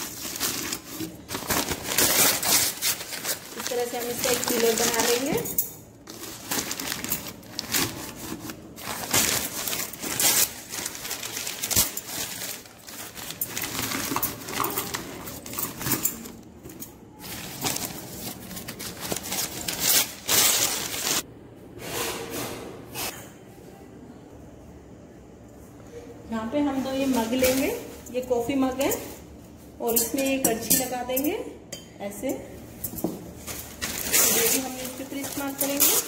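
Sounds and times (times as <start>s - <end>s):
newspaper crumpling: 0.0s - 5.3s, 6.1s - 16.3s, 17.2s - 21.2s, 33.4s - 36.0s.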